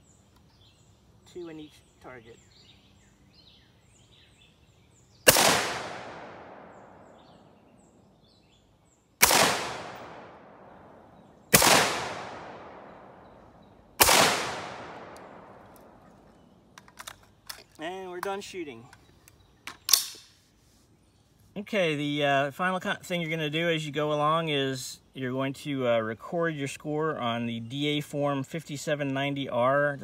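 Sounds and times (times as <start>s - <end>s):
rifle shots with echo: 5.3s - 7.5s, 9.2s - 16.0s.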